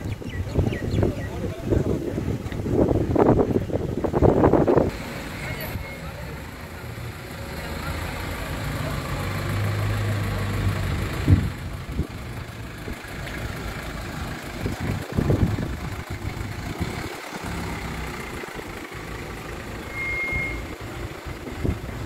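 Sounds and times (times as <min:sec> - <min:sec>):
vehicle engines idling: 0:00.0 - 0:22.0
high beep: 0:19.8 - 0:20.8.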